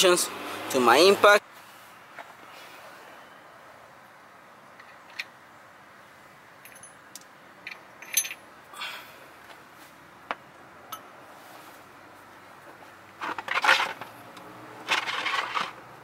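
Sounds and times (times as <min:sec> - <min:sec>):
metallic clinks of tools handled: 0:06.6 - 0:07.0, 0:07.6 - 0:08.4.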